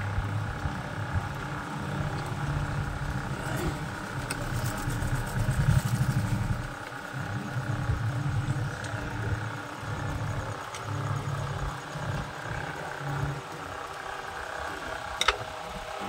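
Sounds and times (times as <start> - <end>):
vehicle engine: 0.0 - 16.0.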